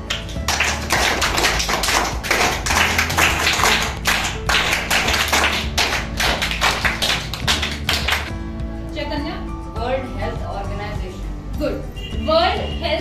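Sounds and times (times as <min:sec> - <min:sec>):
children applauding: 0:00.0 - 0:08.3.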